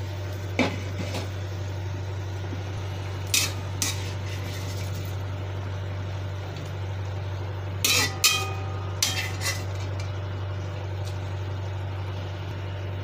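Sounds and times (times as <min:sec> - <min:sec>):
low hum: 0:00.0 - 0:13.0
metal ladle scraping frying pan: 0:03.3 - 0:05.0, 0:07.8 - 0:10.1.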